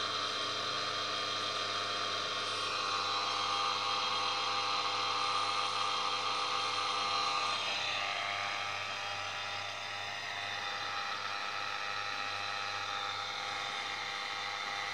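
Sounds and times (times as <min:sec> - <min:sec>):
film camera motor whirring: 0:00.2 - 0:08.8.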